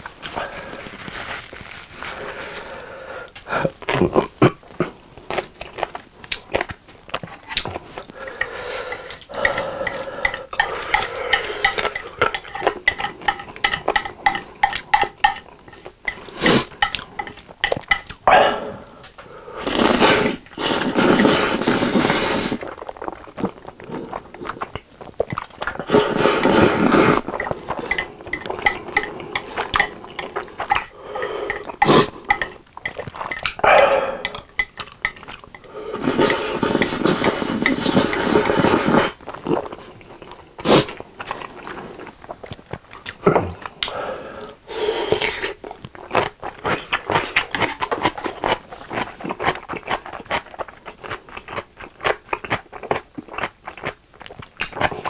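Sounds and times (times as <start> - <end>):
wet chewing and mouth smacks: 3.3 - 18.3, 19.0 - 44.0, 45.1 - 55.0
noodle slurps: 7.4 - 17.4, 18.3 - 42.9.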